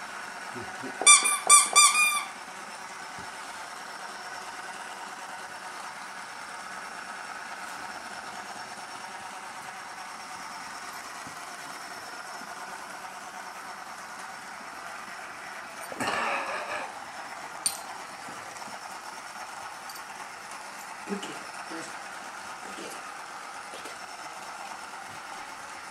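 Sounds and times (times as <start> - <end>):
faint background hum: 0.1 - 6.0
squeaky dog toy squeaks: 1.0 - 2.4.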